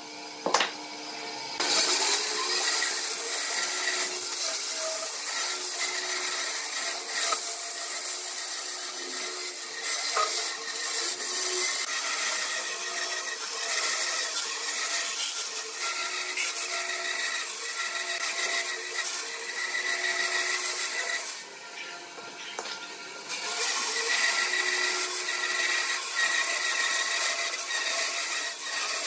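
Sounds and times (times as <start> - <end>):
band saw blade rasping: 1.6 - 21.5.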